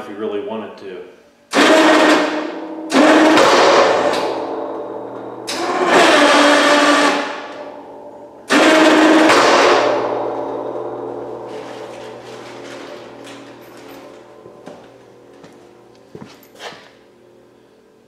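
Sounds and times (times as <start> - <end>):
steady low hum: 0.0 - 18.0
electric winch running: 1.5 - 17.6.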